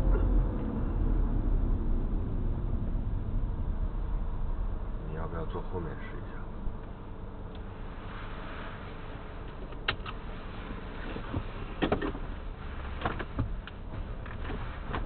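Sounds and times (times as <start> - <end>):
car cabin hum: 0.0 - 15.0
bumps against car seats: 11.0 - 15.0.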